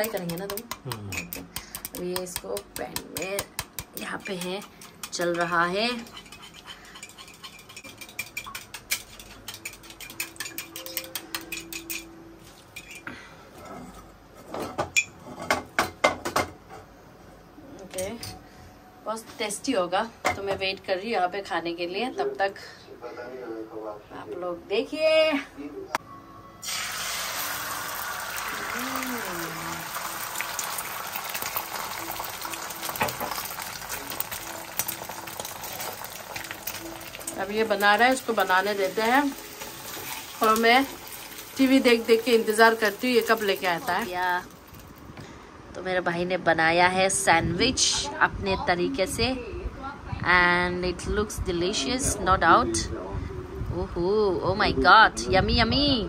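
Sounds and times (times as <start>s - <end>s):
utensils clattering against cookware: 3.2s - 16.8s
sandwich sizzling in a pan: 26.6s - 45.0s.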